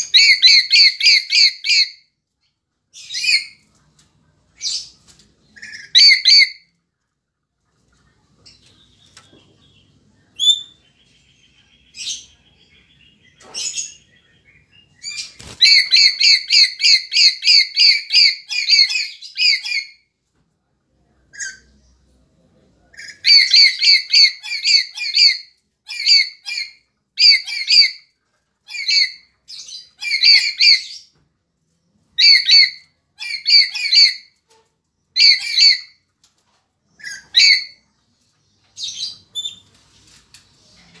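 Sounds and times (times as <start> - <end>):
parrots screeching: 0.0 - 2.0, 5.6 - 6.6, 15.5 - 20.0, 30.0 - 30.9, 35.2 - 36.0.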